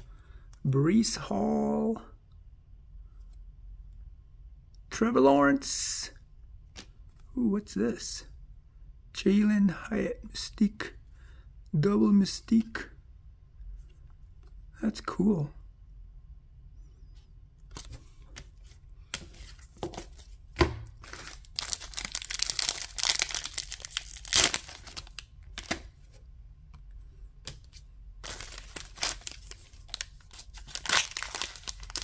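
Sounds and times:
foil wrapper crinkling and tearing: 21.0 - 25.8, 28.2 - 32.0.

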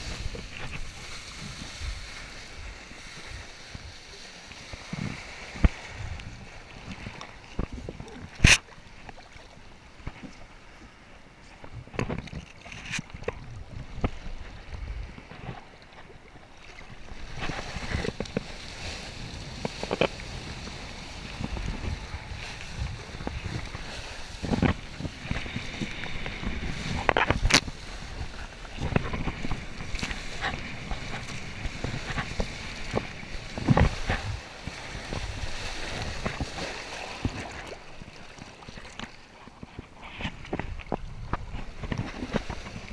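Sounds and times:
wind buffeting microphone: 0.0 - 8.6, 16.9 - 38.5, 39.5 - 42.9
water rushing under a kiteboard: 0.0 - 42.9.

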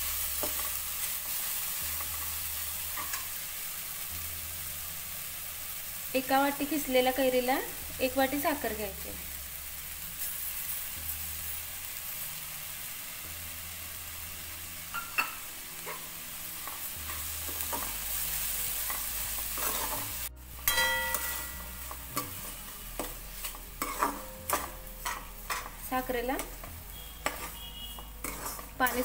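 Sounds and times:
food sizzling in oil: 0.0 - 29.0
metal spatula scraping a pan: 18.8 - 29.0.

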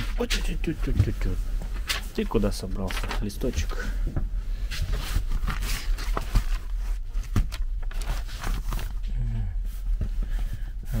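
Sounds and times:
paper rustling: 0.0 - 4.0, 4.6 - 9.0
steady low hum: 0.0 - 11.0.

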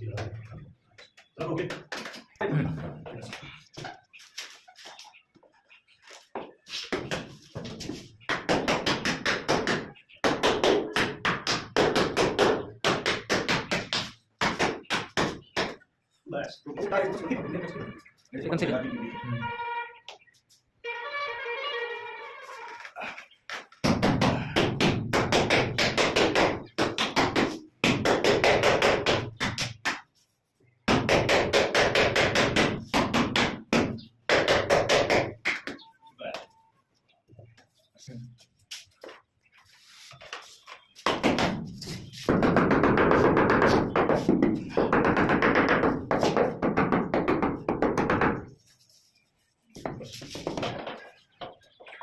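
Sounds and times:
rapid tapping on wall tiles: 6.9 - 15.8, 23.5 - 30.2, 41.0 - 48.6
rapid tapping on ceramic tile: 42.3 - 48.5.

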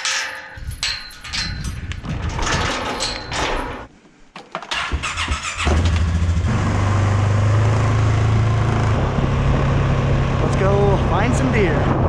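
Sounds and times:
atv engine starting and idling: 4.7 - 8.0.

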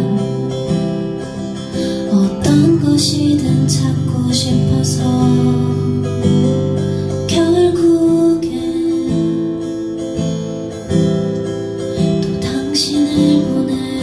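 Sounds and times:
acoustic guitar strumming: 0.0 - 14.0.

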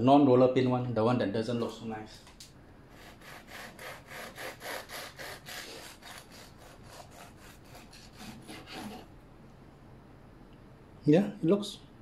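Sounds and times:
knife sawing through bread: 2.9 - 9.1.

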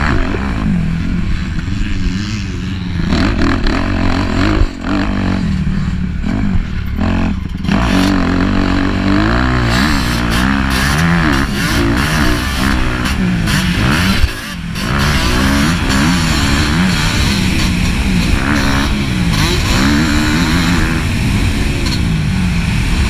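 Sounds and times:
motocross bike engine revving: 0.0 - 23.0.

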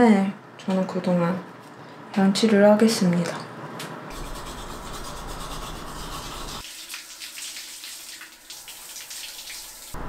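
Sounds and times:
toothbrush scrubbing: 4.1 - 9.9
shower water splashing on hair: 6.6 - 10.0.

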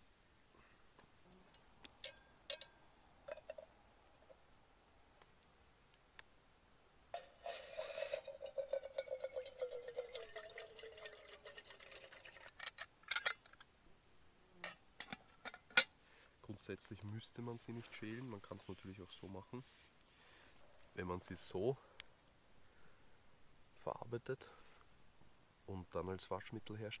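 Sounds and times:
water pouring into metal pot: 7.2 - 12.8.

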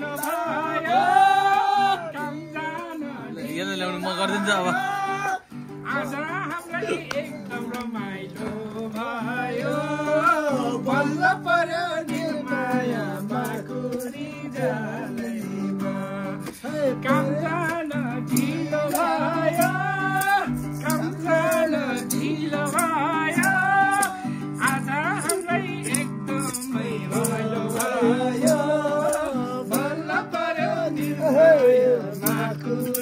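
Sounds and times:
person singing: 0.0 - 33.0
plucked strings: 0.0 - 33.0
light percussive clicks: 0.1 - 0.5, 7.0 - 8.0, 16.4 - 29.9, 31.0 - 33.0.

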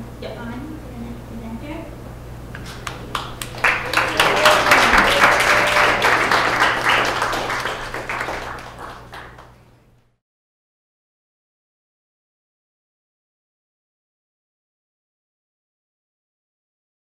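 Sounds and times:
audience applause: 2.7 - 9.6.

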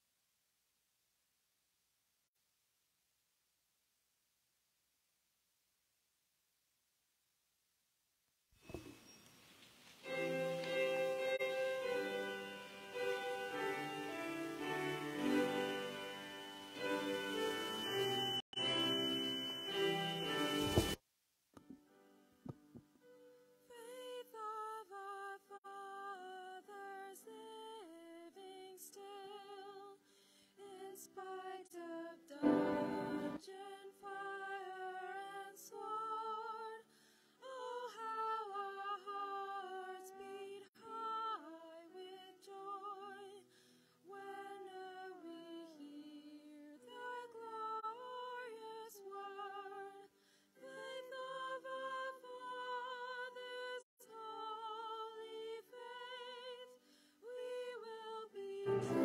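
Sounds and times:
person singing hymn with vibrato: 10.0 - 21.0, 23.7 - 30.0, 30.6 - 59.0.

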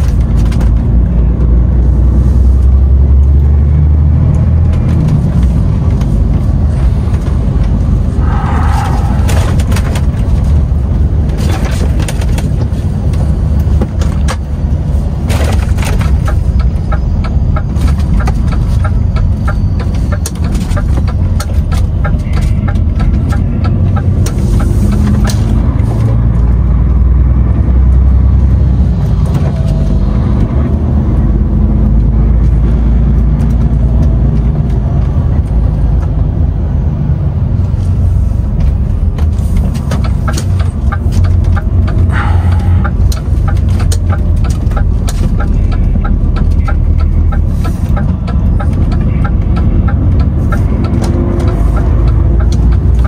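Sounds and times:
diesel engine and road rumble: 0.0 - 53.0
sharp clicks and rattles: 9.3 - 26.5, 38.6 - 53.0.

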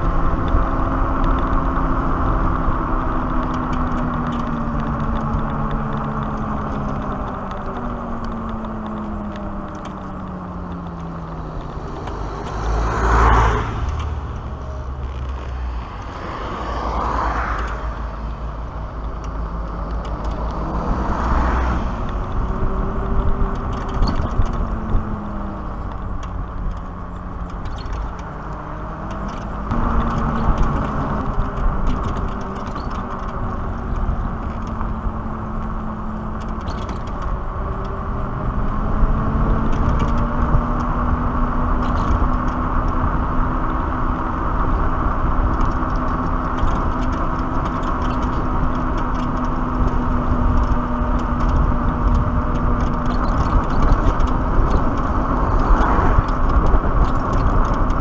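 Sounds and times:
tyre noise on asphalt: 0.0 - 58.0
wind buffeting microphone: 0.0 - 58.0.

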